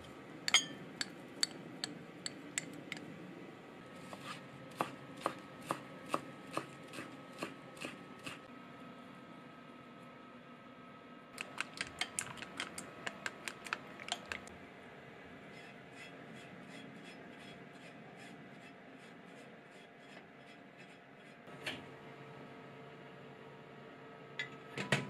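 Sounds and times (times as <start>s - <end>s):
chopsticks clicking against glass bowl: 11.4s - 14.5s.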